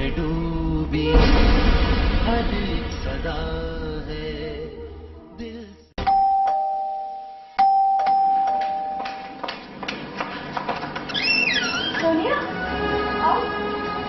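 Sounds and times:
two-tone door chime: 0:06.0 - 0:09.4.

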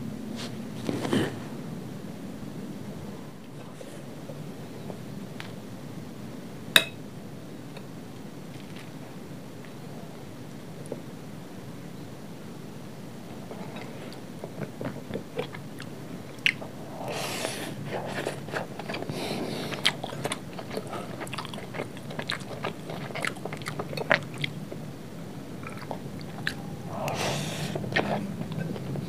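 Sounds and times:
chewing crunchy food: 0:13.4 - 0:24.9, 0:25.6 - 0:29.0.

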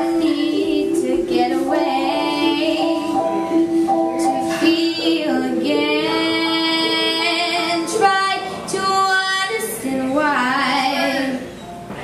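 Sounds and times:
girl singing into a microphone: 0:00.0 - 0:11.6.

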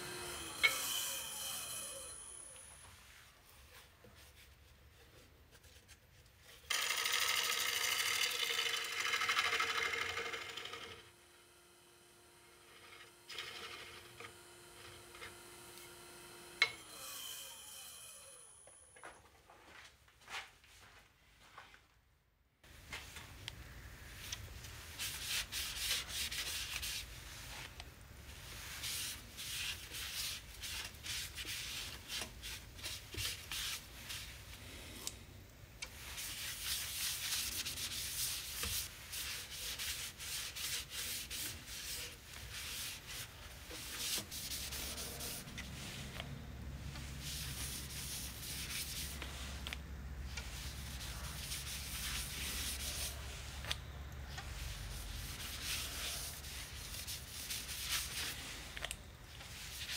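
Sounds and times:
lathe humming: 0:00.0 - 0:02.8, 0:06.7 - 0:18.6
sandpaper scratching spinning wood: 0:06.7 - 0:11.0, 0:24.8 - 0:27.7, 0:28.3 - 0:34.4, 0:36.0 - 0:46.2, 0:46.9 - 0:49.8, 0:50.4 - 0:53.8, 0:54.5 - 0:58.8.

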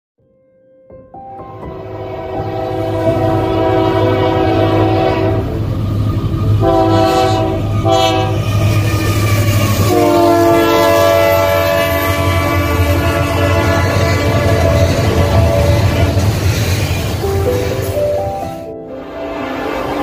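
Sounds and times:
locomotive air horn blasts: 0:01.7 - 0:05.6, 0:06.6 - 0:16.2.

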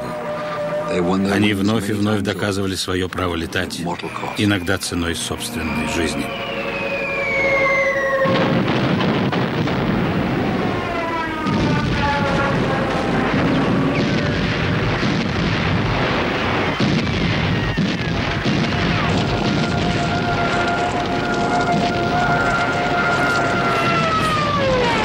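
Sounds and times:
falling whistling tones: 0:04.0 - 0:08.7
explosions: 0:07.2 - 0:25.0
anti-aircraft gunfire: 0:08.2 - 0:25.0.

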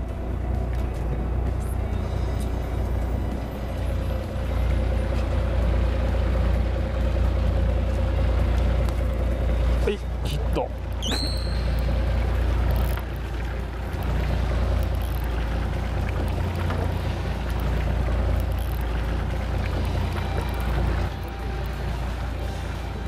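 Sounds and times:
boat engine low rumble: 0:00.0 - 0:23.0
water noise: 0:00.0 - 0:23.0
wind: 0:00.0 - 0:23.0.

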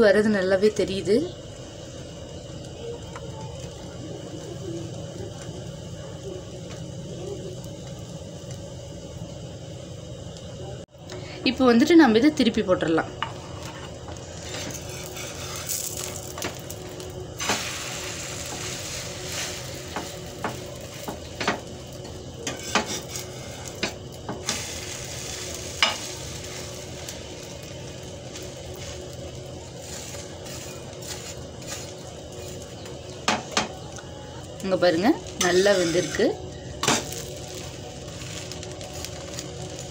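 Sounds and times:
omelette sizzling in frying pan: 0:00.0 - 0:39.9
steel spatula scraping pan: 0:13.4 - 0:16.0, 0:22.4 - 0:23.8, 0:35.4 - 0:37.1.

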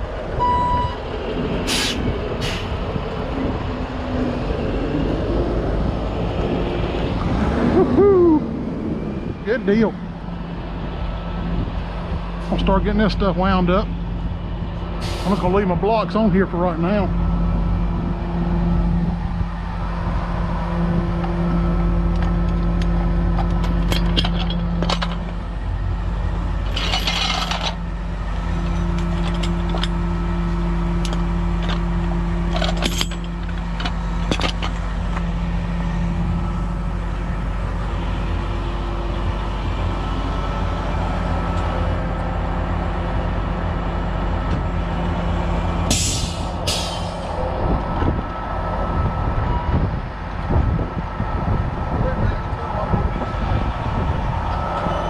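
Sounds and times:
diesel truck engine running: 0:00.0 - 0:55.0
air hissing: 0:01.7 - 0:02.8
metal clanks: 0:23.3 - 0:25.4, 0:26.6 - 0:27.8, 0:28.6 - 0:30.0, 0:31.0 - 0:35.3.

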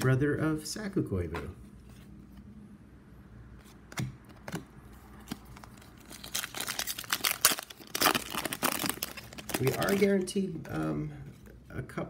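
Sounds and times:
foil wrapper crinkling and tearing: 0:05.2 - 0:10.4.

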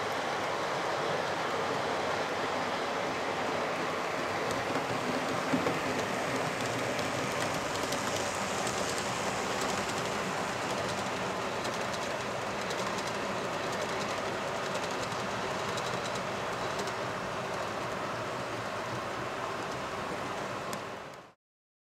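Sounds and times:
wheels clicking over track: 0:03.8 - 0:21.3.

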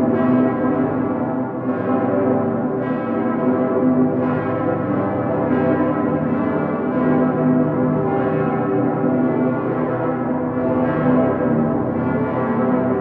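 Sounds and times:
large church bells ringing: 0:00.0 - 0:13.0.

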